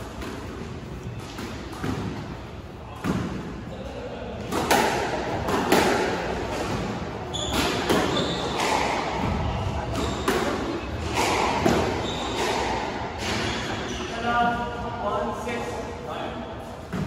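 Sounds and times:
squash ball struck by rackets: 0.1 - 2.3, 4.4 - 13.5.

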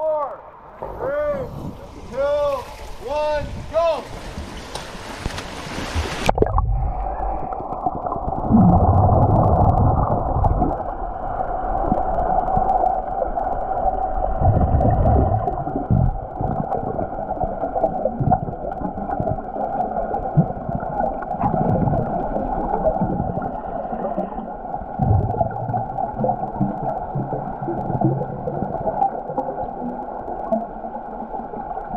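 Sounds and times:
underwater gurgling: 0.4 - 31.9
pool splashing: 0.5 - 11.2.

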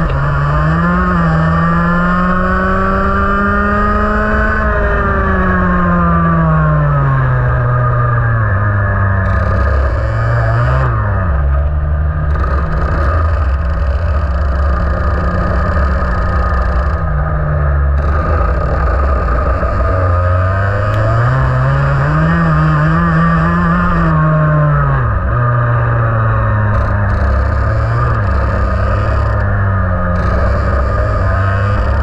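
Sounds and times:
kart engine revving: 0.0 - 32.0.

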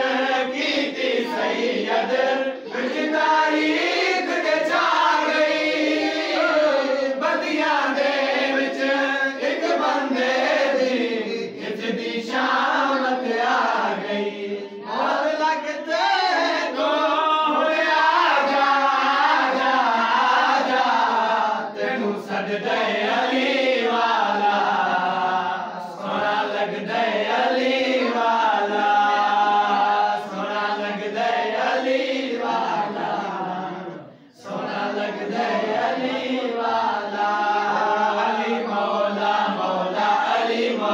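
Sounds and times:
men chanting together: 0.0 - 40.9.

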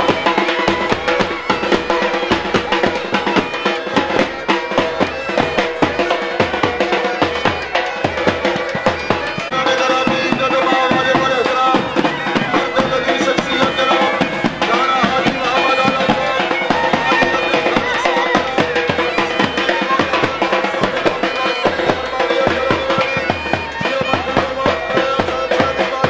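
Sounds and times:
bagpipes playing a folk tune: 0.0 - 26.0
marching side drums: 0.0 - 26.0.

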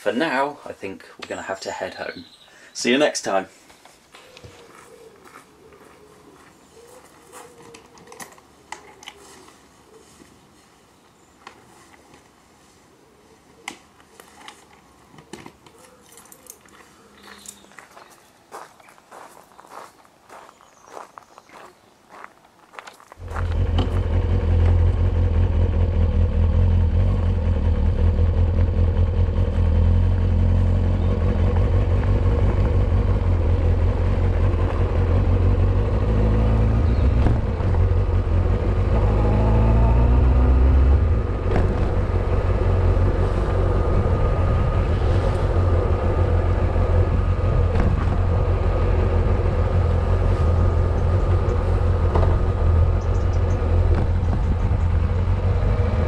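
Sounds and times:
motorcycle engine running: 23.2 - 56.0.

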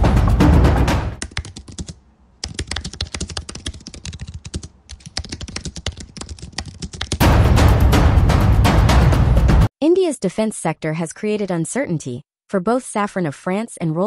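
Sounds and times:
loud intro music: 0.0 - 1.2, 7.2 - 9.7
rapid keyboard typing: 1.2 - 7.2.

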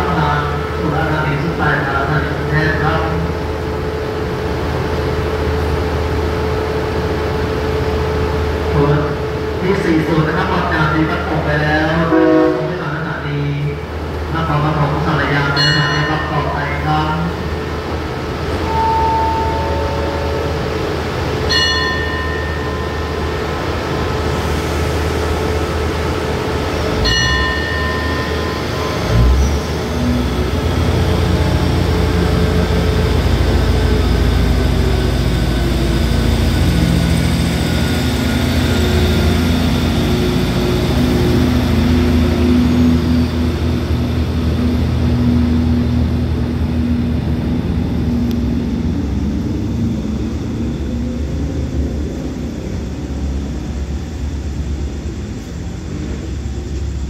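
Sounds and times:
diesel train engine: 0.0 - 57.0
short high-pitched signal tones: 18.6 - 20.6.

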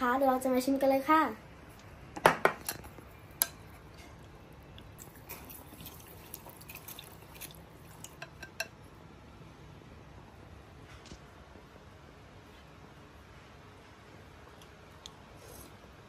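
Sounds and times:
small wet sounds: 4.2 - 8.4.

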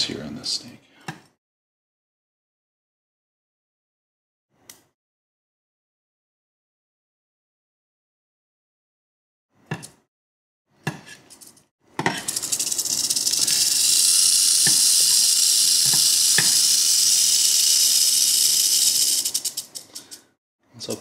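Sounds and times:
rattlesnake rattling: 12.2 - 20.3.

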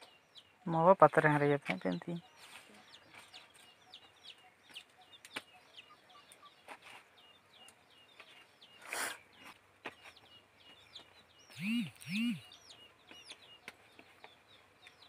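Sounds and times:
faint high bird cheeping: 11.5 - 12.9.

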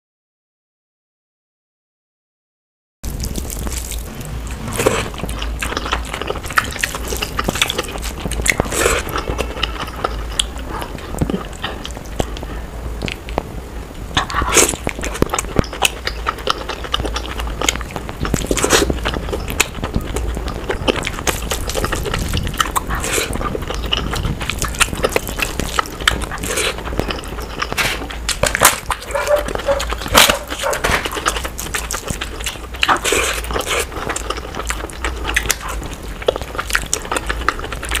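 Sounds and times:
wet squishing of rice: 3.0 - 9.8, 14.2 - 26.9
chewing and lip-smacking: 3.1 - 13.4, 14.2 - 38.0.

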